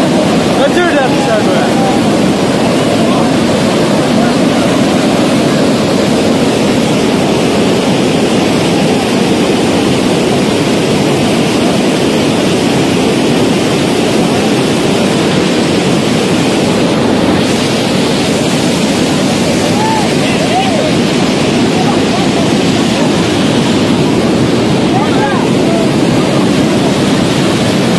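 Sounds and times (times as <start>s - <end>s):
floodwater rushing: 0.0s - 27.9s.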